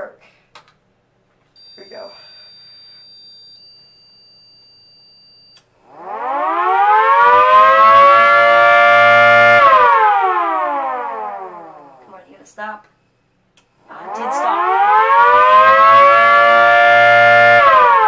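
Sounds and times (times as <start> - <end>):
siren wailing: 5.8 - 12.1, 13.9 - 18.0.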